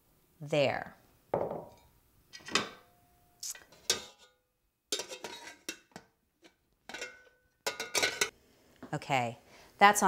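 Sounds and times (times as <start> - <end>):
metal pot and lid clinking: 1.6 - 8.3.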